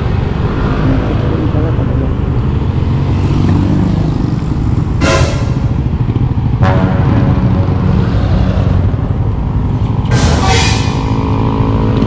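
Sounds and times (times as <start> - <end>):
road and wind noise: 0.0 - 12.0
sudden sharp noises: 0.3 - 11.8
motorcycle engine running: 0.8 - 9.8.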